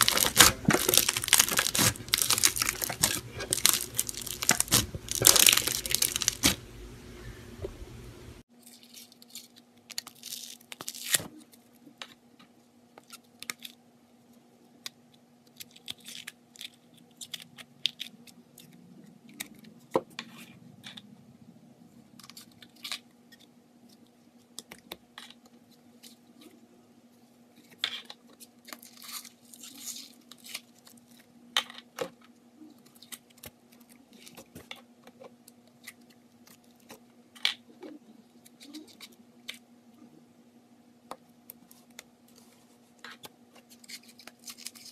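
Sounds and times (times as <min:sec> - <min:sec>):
foam beads crackling: 0:00.0 - 0:06.7
slime squishing: 0:00.0 - 0:06.7
faint low hum: 0:00.0 - 0:08.4.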